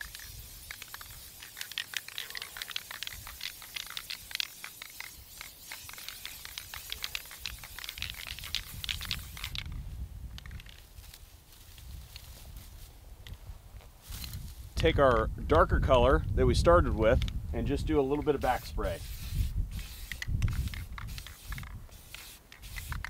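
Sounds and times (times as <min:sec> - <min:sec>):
spray paint can hissing: 0:00.0 - 0:09.8, 0:18.1 - 0:23.0
dry grass stems crackling: 0:00.0 - 0:14.7.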